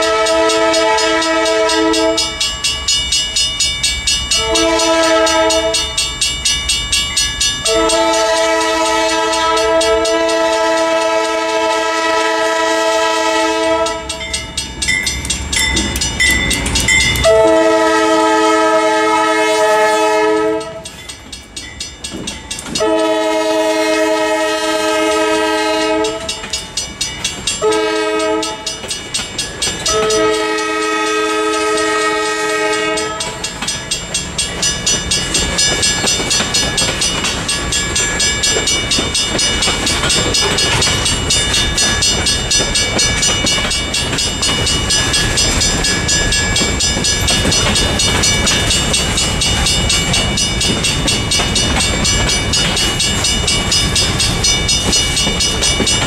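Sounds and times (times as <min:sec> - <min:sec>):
locomotive air horn blasts: 0:00.0 - 0:02.3, 0:04.4 - 0:05.9, 0:07.6 - 0:14.2, 0:17.2 - 0:20.8, 0:22.8 - 0:26.3, 0:27.6 - 0:28.6, 0:29.9 - 0:33.4
crossing bell ringing: 0:00.0 - 0:56.0.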